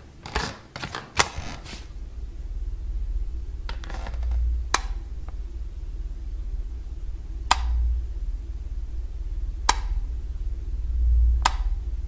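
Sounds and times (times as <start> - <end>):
low rumble: 1.4 - 12.0
light switch clicks: 4.7 - 5.0, 7.5 - 7.8, 9.7 - 10.0, 11.4 - 11.8.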